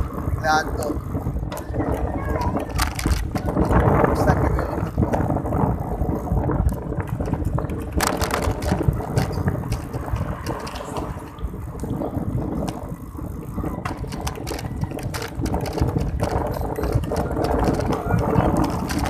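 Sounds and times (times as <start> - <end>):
wind buffeting microphone: 0.0 - 19.0
clicks and rattles: 1.5 - 3.9, 6.6 - 12.0, 13.8 - 19.0.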